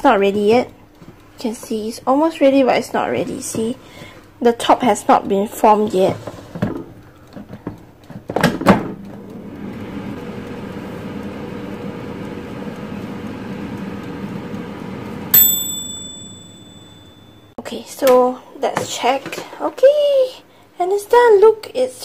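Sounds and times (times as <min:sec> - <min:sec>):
air fryer fan humming: 0:06.6 - 0:17.5
timer bell ding: 0:15.3 - 0:17.5.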